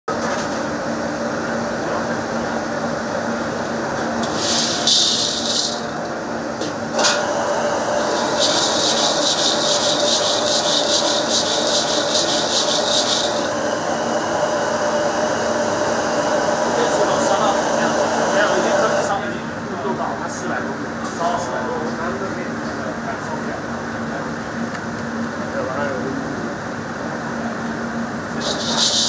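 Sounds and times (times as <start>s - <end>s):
pebbles scraping in a steel wok: 4.2s - 6.0s, 8.0s - 13.5s, 28.4s - 29.0s.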